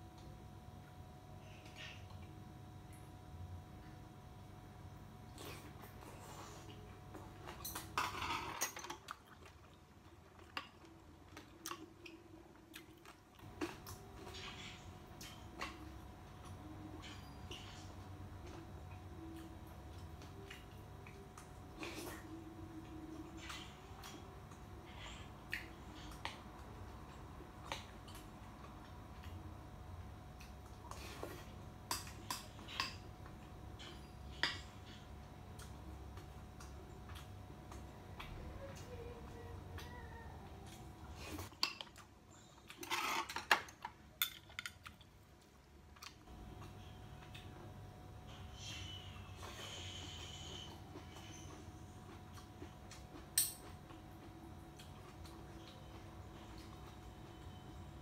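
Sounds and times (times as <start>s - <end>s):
person chewing: 8.4s - 18.6s, 49.4s - 57.0s.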